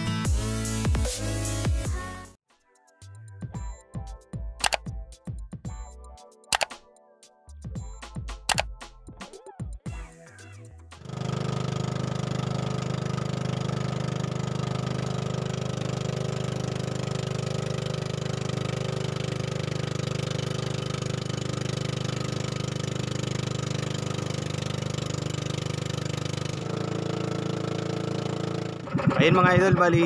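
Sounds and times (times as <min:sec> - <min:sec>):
boat engine droning: 0:11.2 - 0:30.0.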